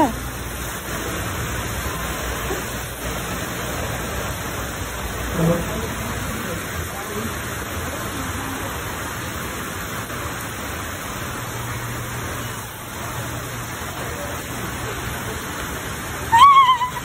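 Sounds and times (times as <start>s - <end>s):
high-pitched cry of surprise: 16.3s - 17.0s.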